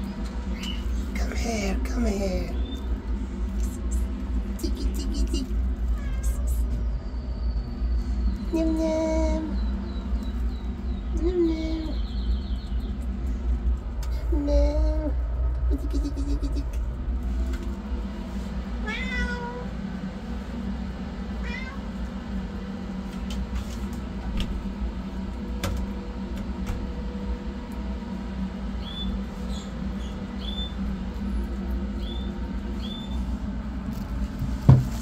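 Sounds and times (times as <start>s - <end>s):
steady low hum: 0.0s - 35.0s
kitten mewing: 4.6s - 6.7s, 18.9s - 19.7s, 21.4s - 21.8s.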